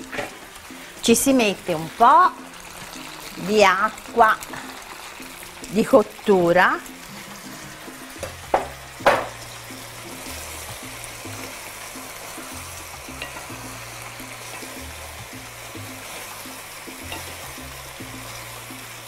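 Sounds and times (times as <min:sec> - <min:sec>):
sauce sizzling in a frying pan: 0:00.0 - 0:19.0
soft background music: 0:00.0 - 0:19.0
sharp knocks: 0:08.2 - 0:09.4.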